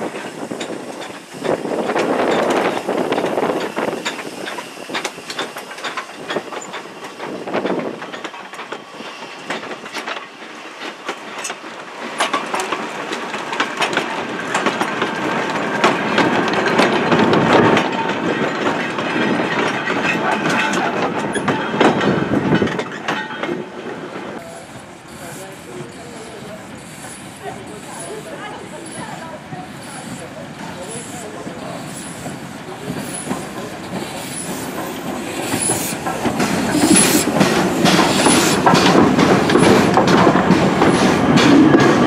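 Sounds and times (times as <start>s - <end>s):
wagons clanking over rail joints: 0.0s - 29.3s, 30.0s - 42.0s
steam locomotive passing: 0.0s - 42.0s.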